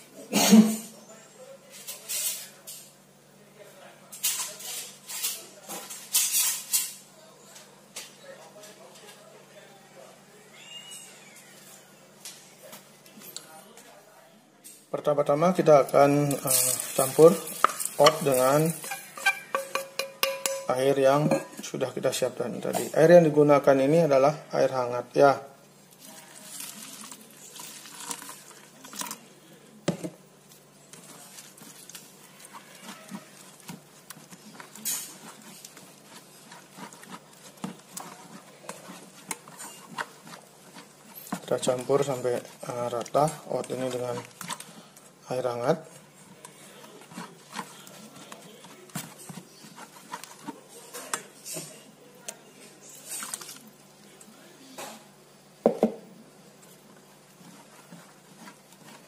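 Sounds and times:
spoon scraping a steel bowl: 0:16.2 - 0:21.6, 0:30.9 - 0:44.9, 0:46.4 - 0:51.8
water pouring onto oats: 0:26.0 - 0:28.6.

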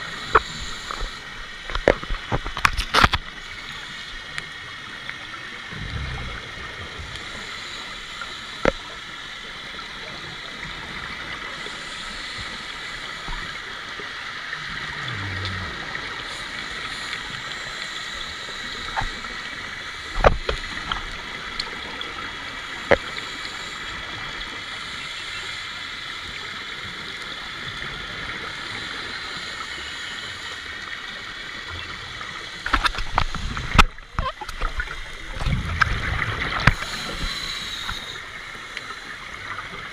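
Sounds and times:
muffled underwater hiss: 0:00.0 - 0:39.9
rumbling and crackling: 0:05.6 - 0:07.7, 0:14.5 - 0:17.0, 0:32.7 - 0:36.9.

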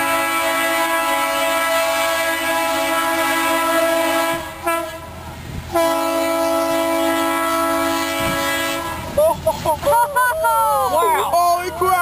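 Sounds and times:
diesel locomotive horn: 0:00.0 - 0:09.2.

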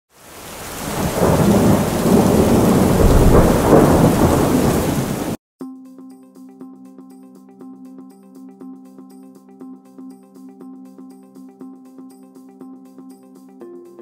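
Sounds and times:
rain: 0:00.1 - 0:05.4
rolling thunder: 0:00.3 - 0:05.4
music: 0:05.6 - 0:14.0.

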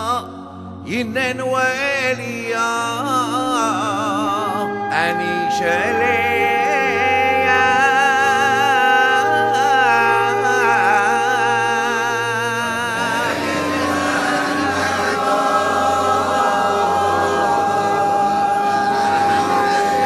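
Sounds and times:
low held drone: 0:00.0 - 0:20.0
solo voice chanting with vibrato: 0:00.0 - 0:20.0
choir singing held note: 0:05.1 - 0:20.0.

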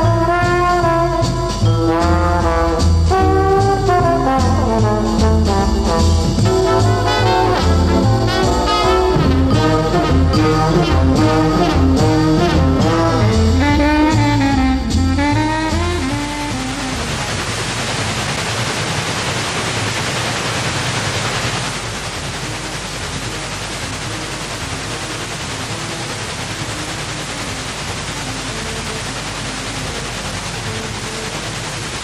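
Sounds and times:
brass-led jazz tune: 0:00.0 - 0:18.4, 0:22.4 - 0:32.0
bass line: 0:00.0 - 0:18.5.

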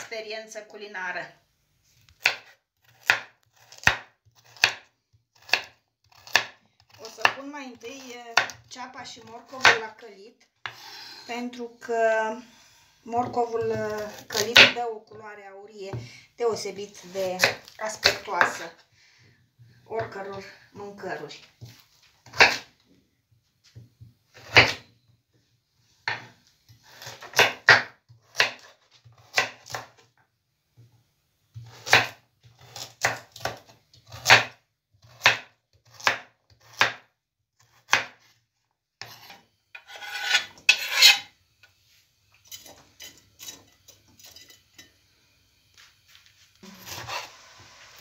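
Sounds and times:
knife chopping on wooden board: 0:02.2 - 0:07.5, 0:08.3 - 0:08.7, 0:21.6 - 0:22.7, 0:24.4 - 0:24.8, 0:26.0 - 0:30.0, 0:31.5 - 0:38.3
knife scraping board: 0:10.6 - 0:11.3, 0:39.0 - 0:41.3, 0:46.6 - 0:48.0.

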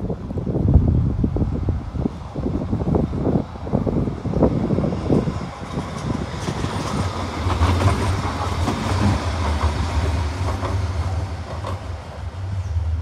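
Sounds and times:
tram rumbling past: 0:00.0 - 0:13.0
wheels clacking on track: 0:02.6 - 0:13.0.

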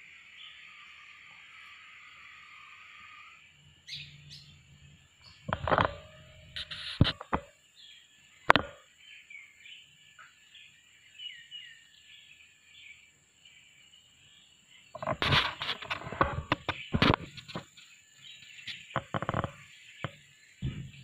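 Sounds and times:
birds chirping: 0:00.0 - 0:21.0
thin high tone: 0:05.6 - 0:07.2.

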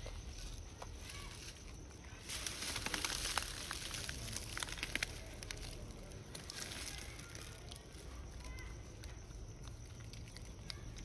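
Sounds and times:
plastic snack packet crinkling: 0:02.2 - 0:11.0.

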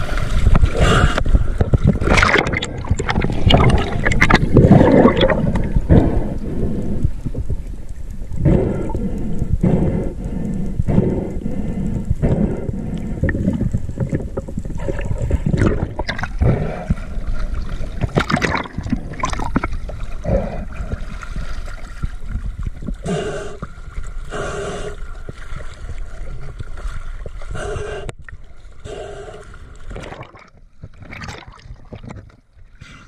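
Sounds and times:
waves sloshing: 0:00.0 - 0:06.2
water rushing and gurgling: 0:00.0 - 0:08.1, 0:13.0 - 0:24.3.

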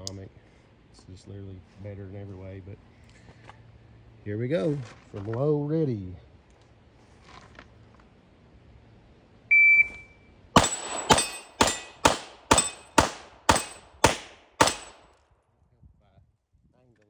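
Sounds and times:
shot timer beep: 0:09.5 - 0:10.2
pistol shots ringing steel plates: 0:10.6 - 0:15.1.

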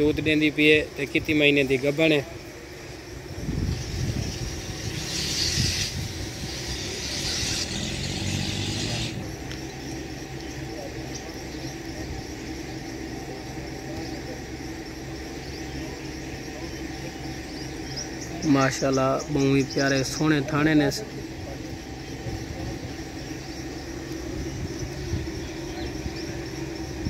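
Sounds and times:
low hum: 0:00.0 - 0:27.0
hooves scraping sandy soil: 0:03.6 - 0:09.8.

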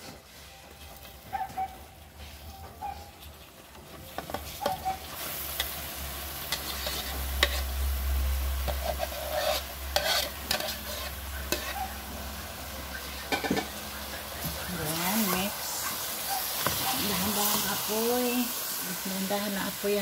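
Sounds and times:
syrup sizzling: 0:03.2 - 0:20.0
spoon scraping bowl and pan: 0:04.0 - 0:07.9, 0:08.6 - 0:12.3, 0:12.9 - 0:18.3.

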